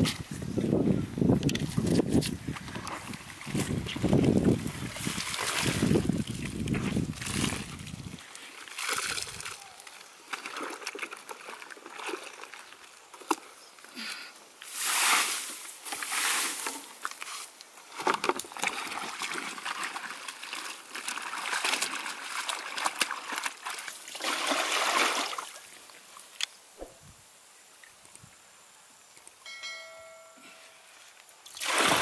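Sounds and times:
water splashing in laundry basins: 0:02.6 - 0:12.9, 0:18.2 - 0:25.7, 0:31.4 - 0:32.0.

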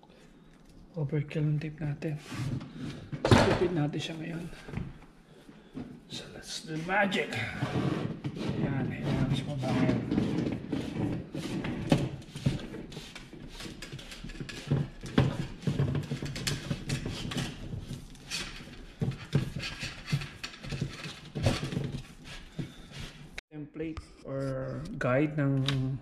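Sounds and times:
cable scraping through opening: 0:06.7 - 0:23.4.

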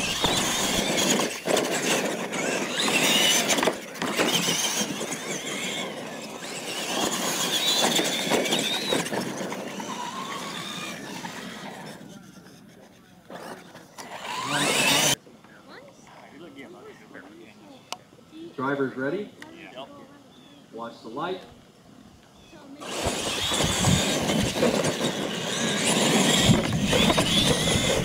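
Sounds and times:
toy truck motors whining: 0:00.0 - 0:15.2, 0:22.4 - 0:28.0
tyres rushing on dirt: 0:00.0 - 0:15.2, 0:22.8 - 0:28.0.

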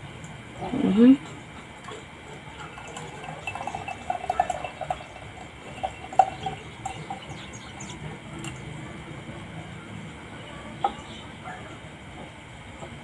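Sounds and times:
juice pouring into glass jar: 0:01.8 - 0:08.7.

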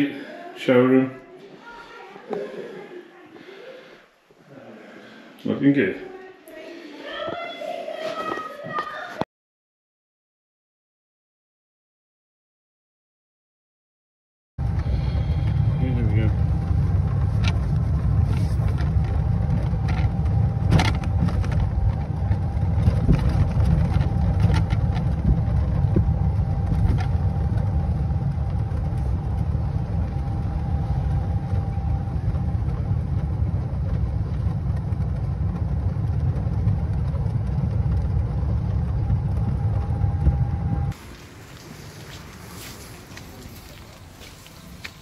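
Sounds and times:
faint steady whine: 0:14.6 - 0:45.0
vehicle engine rumble: 0:14.6 - 0:45.0.

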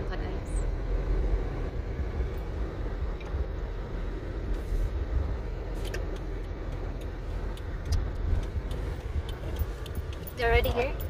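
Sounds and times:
car engine and road noise: 0:00.0 - 0:11.0
faint ticks: 0:05.9 - 0:11.0.

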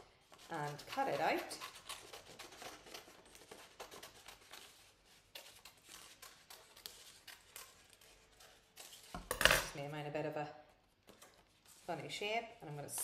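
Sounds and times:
scissors snipping paper: 0:00.3 - 0:09.2.

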